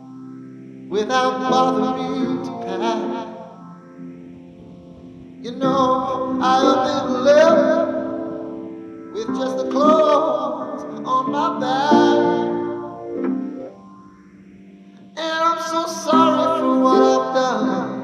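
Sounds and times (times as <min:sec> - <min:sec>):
piano chords: 0:00.0 - 0:18.0
man singing slow melody: 0:00.9 - 0:03.5, 0:05.4 - 0:13.0, 0:15.2 - 0:18.0.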